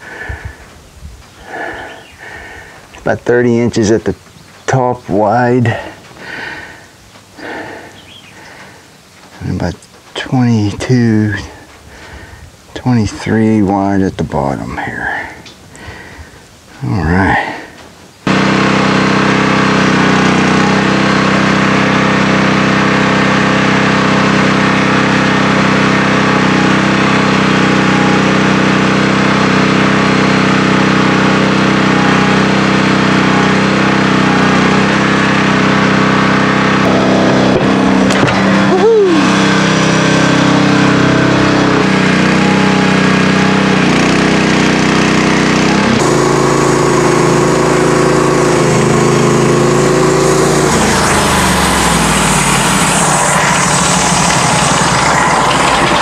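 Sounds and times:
sawmill engine running: 0.0 - 11.8, 18.3 - 56.0.

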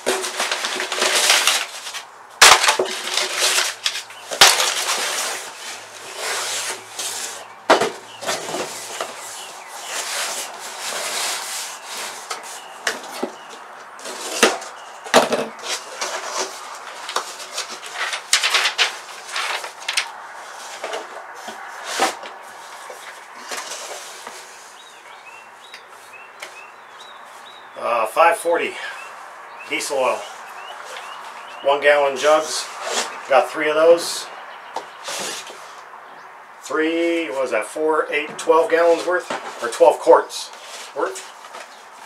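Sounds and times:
cardboard flaps scraping and rustling: 0.0 - 25.0, 32.2 - 33.5, 34.8 - 35.8, 38.6 - 42.0.

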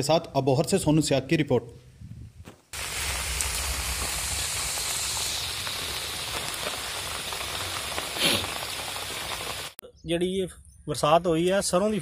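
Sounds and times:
rain falling on trees: 2.8 - 9.8.

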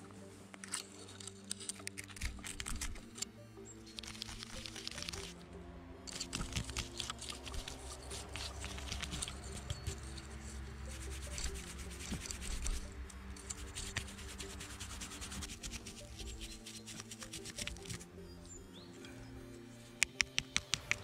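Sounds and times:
quiet background music: 0.0 - 21.0
scratchy rubbing and crackling: 0.6 - 3.2, 3.9 - 5.4, 6.1 - 18.1
dense small clicks: 0.6 - 5.4, 6.0 - 18.1, 20.0 - 21.0.

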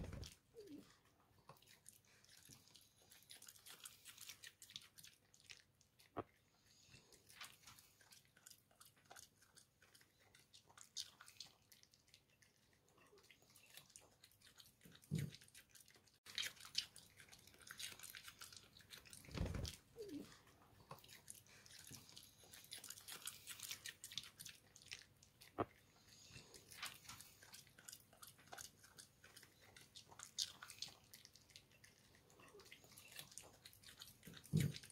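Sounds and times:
dog chewing stems: 13.5 - 34.9.

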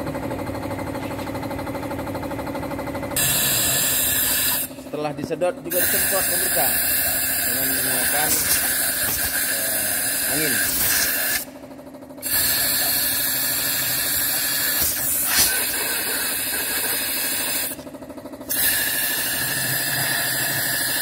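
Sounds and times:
compressed air hissing: 3.2 - 4.8, 5.7 - 11.5, 12.2 - 17.8, 18.4 - 21.0.

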